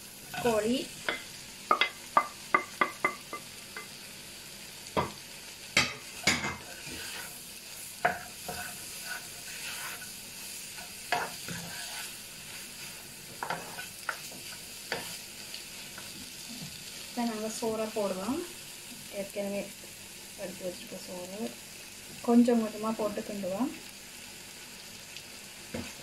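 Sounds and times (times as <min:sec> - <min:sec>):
food sizzling in a wok: 0:00.0 - 0:26.0
spatula scraping and tapping pan: 0:00.3 - 0:04.0, 0:05.8 - 0:16.3.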